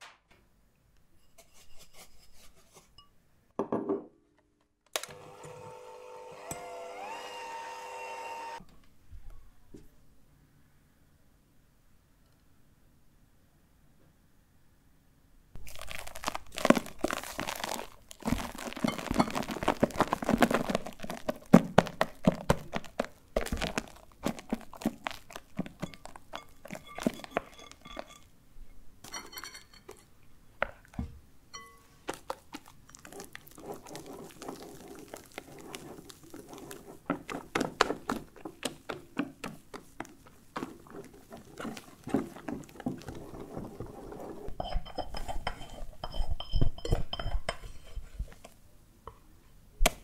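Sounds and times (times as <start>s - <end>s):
whisk clinking on glass bowl: 25.8s - 28.3s, 29.1s - 30.0s, 31.6s - 31.9s, 44.6s - 48.0s
whisk strokes in batter: 32.2s - 46.2s.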